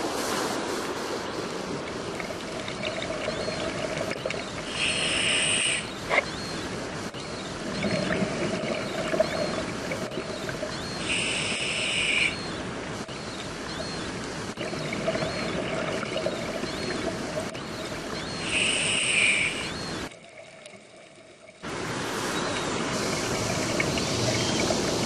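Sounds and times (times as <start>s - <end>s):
regulator inhalation hiss: 4.7s - 6.0s, 11.0s - 12.4s, 18.4s - 19.8s
bubbling exhalations: 7.7s - 10.2s.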